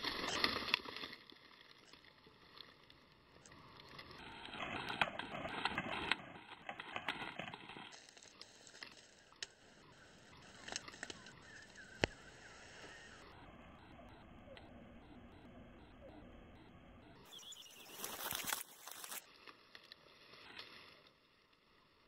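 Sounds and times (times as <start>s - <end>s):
dry straw crunching underfoot: 0.0s - 13.0s, 17.3s - 21.5s.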